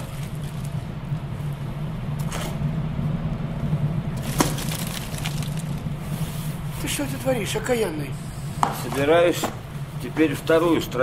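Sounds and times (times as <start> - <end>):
fire rumbling in a stove: 0.0 - 11.0
fire crackles: 4.1 - 6.9.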